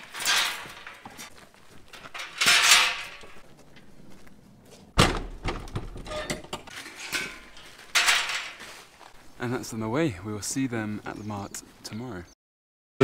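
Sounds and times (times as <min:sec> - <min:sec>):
knocks and rattles: 0:00.0 - 0:03.4, 0:05.0 - 0:08.7
heavy metal door slamming: 0:05.0 - 0:06.6.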